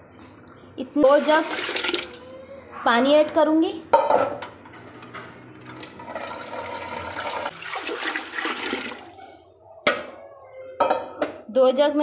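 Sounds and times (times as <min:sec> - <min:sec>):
water pouring into a pot: 0:01.2 - 0:02.2, 0:05.7 - 0:09.1.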